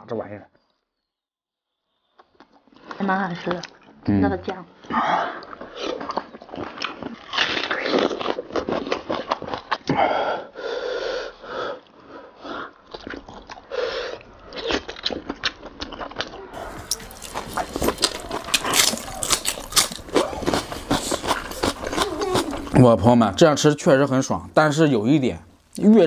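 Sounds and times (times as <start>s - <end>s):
wet chewing and lip-smacking: 2.1s - 9.9s, 11.8s - 22.8s
person humming with enjoyment: 21.8s - 22.7s.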